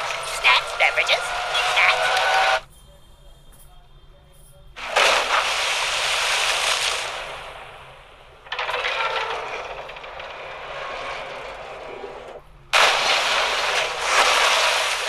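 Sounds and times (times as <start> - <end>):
big water splash: 4.8 - 8.1, 12.8 - 15.0.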